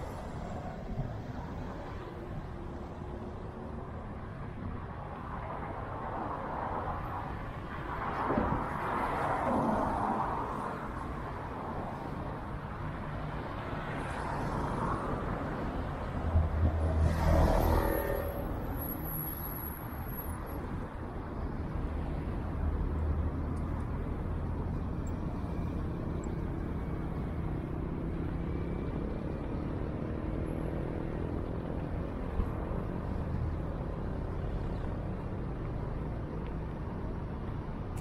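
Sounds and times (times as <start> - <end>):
cars driving past: 5.6 - 38.0.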